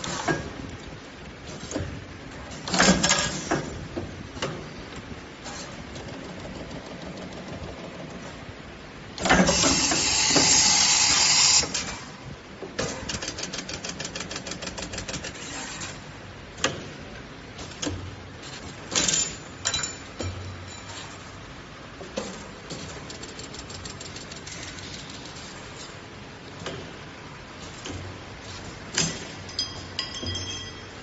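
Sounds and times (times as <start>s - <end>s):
bending machine hissing: 9.2s - 12.1s
machine clicking: 12.8s - 15.4s, 22.8s - 25.4s.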